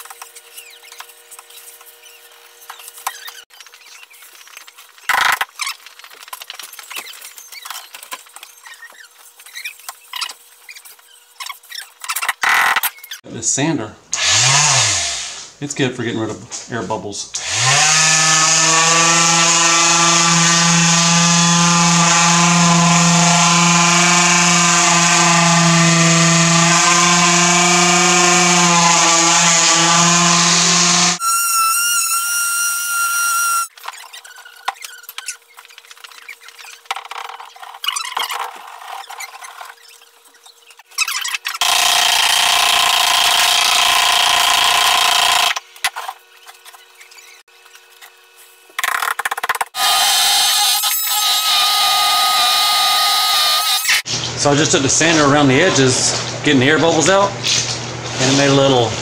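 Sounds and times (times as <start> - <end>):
electric sander motor hum: 17.4 - 33.7.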